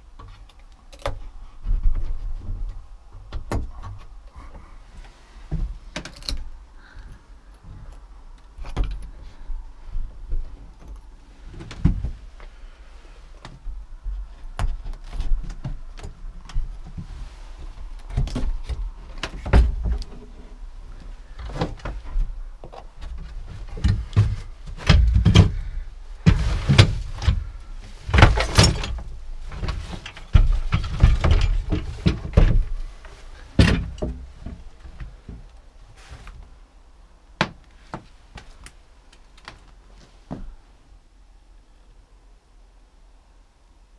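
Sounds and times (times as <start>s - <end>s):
wooden door thumping and scraping: 18.1s - 20.4s, 21.4s - 32.9s.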